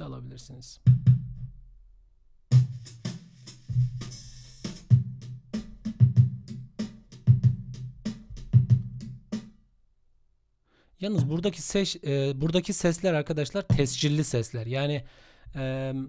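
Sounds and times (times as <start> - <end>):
drum kit loop: 0.8 - 1.4, 2.5 - 9.6, 11.1 - 11.7, 13.7 - 14.4.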